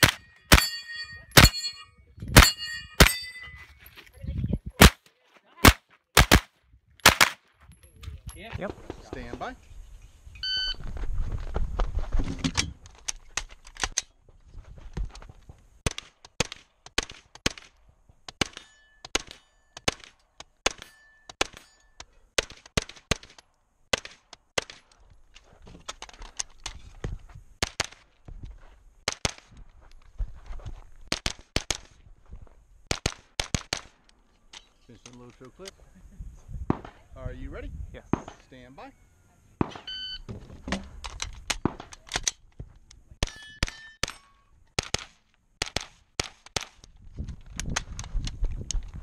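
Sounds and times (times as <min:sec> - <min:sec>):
carbine firing quick shots: 0:00.0 - 0:00.7, 0:05.6 - 0:07.4
shot timer beep: 0:39.8 - 0:40.3.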